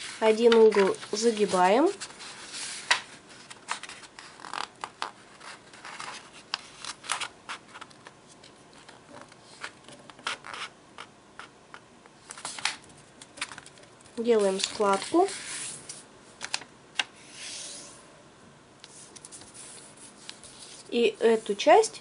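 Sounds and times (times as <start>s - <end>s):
paper rustling and crackling: 0.0s - 10.7s, 12.3s - 16.7s.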